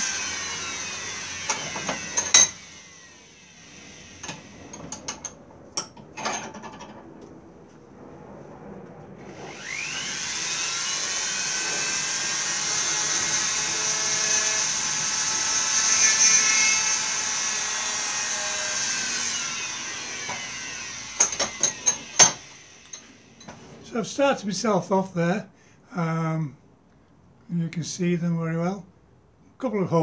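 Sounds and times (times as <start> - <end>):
rotary tool whining: 0.0 - 5.4, 9.2 - 23.8.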